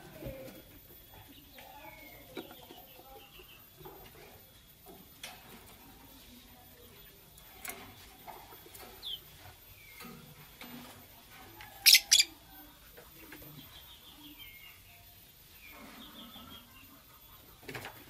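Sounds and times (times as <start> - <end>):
lovebirds chirping: 11.7 - 12.4.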